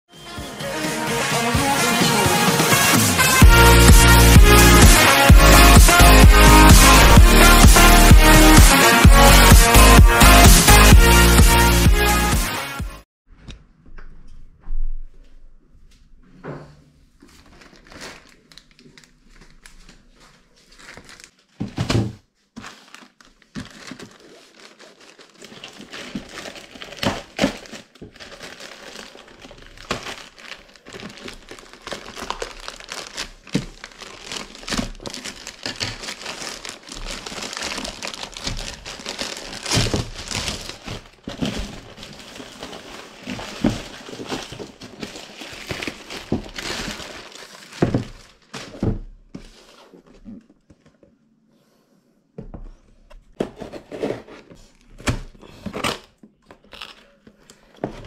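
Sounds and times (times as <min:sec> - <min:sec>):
foil wrapping crackling: 0:17.3 - 0:21.5, 0:22.6 - 0:48.9
plastic mailer bag crinkling: 0:17.3 - 0:21.6, 0:22.6 - 0:48.9.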